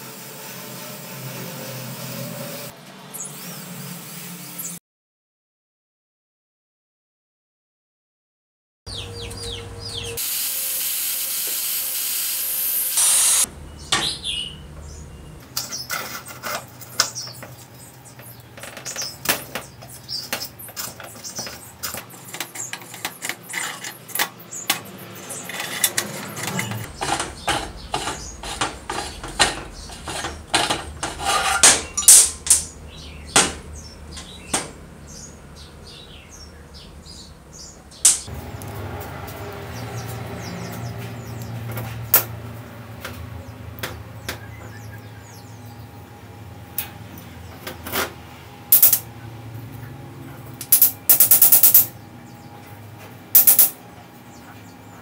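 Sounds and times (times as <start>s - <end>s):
loud hiss: 10.2s - 13.5s.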